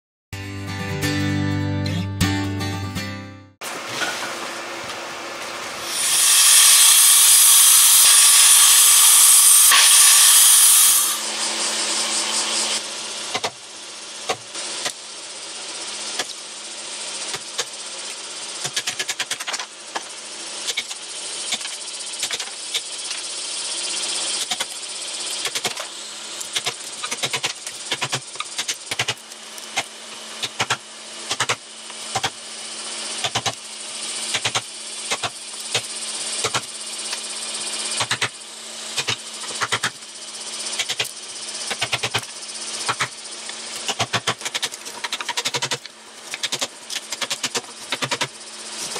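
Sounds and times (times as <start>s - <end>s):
loud rushing hiss: 5.7s - 11.3s.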